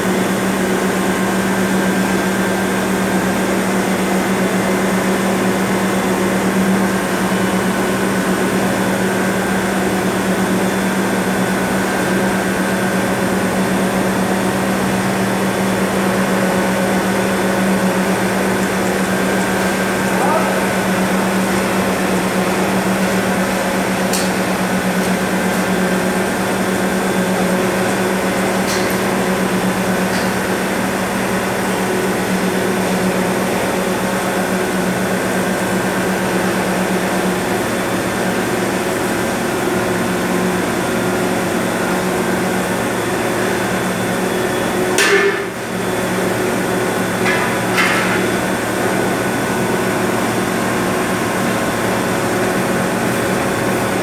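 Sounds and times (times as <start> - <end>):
induction furnace humming: 0.0 - 54.0.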